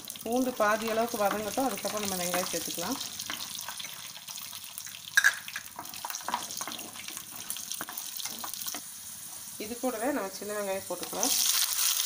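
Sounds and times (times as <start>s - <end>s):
garlic and seeds sizzling in oil: 0.0s - 12.0s
wooden spatula stirring in pan: 5.7s - 9.5s
oil crackles: 11.0s - 12.0s.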